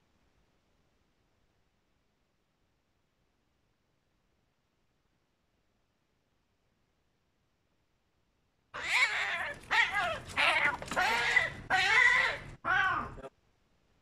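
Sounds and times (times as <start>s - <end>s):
cat yowling: 8.8s - 13.2s.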